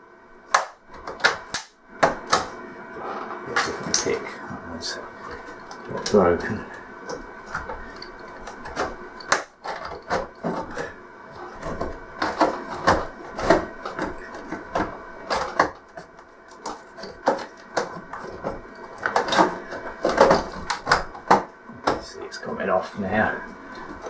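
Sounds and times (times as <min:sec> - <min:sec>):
plastic clips snapping loose: 0:00.5 - 0:02.5.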